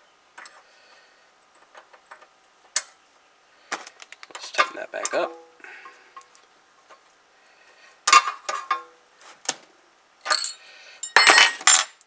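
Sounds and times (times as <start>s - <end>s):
wrench clinking on metal: 10.2s - 12.0s.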